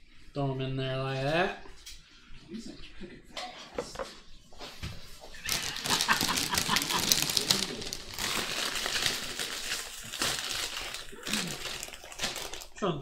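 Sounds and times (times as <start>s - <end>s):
plastic chip bag crinkling: 5.4s - 12.9s.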